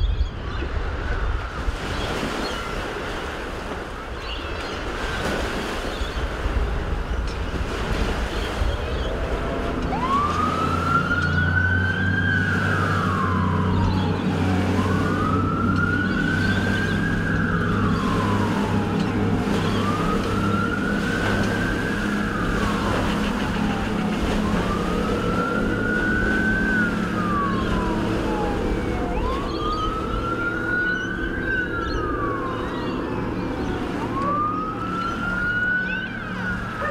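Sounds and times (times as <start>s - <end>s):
outboard motors droning: 0.0s - 36.9s
wailing siren: 8.0s - 36.9s.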